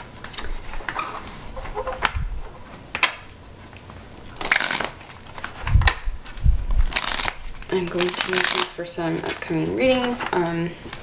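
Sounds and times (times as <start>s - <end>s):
cards shuffling: 3.0s - 11.0s.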